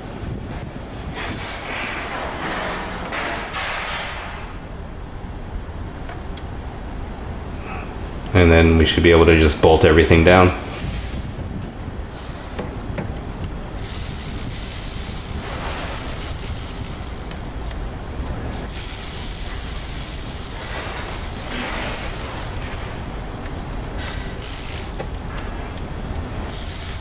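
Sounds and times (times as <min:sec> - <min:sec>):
hand ratchet clicking: 0:12.1 - 0:27.0.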